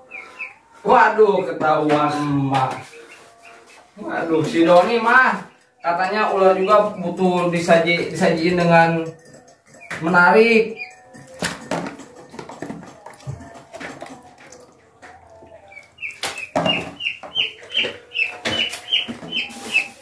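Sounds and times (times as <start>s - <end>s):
chicken calling: 0.0s - 1.0s, 2.7s - 8.0s, 15.3s - 20.0s.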